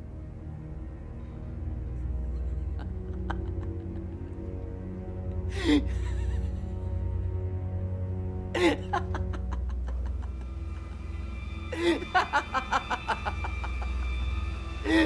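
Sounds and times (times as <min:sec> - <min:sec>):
dramatic film score drone: 0:00.0 - 0:15.0
person laughing: 0:02.2 - 0:04.5, 0:05.6 - 0:07.2, 0:08.6 - 0:10.6, 0:11.8 - 0:15.0.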